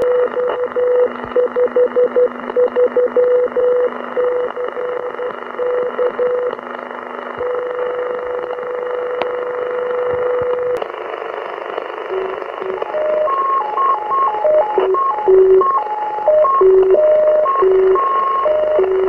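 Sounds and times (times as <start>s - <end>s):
radio band hiss: 10.7s - 15.6s.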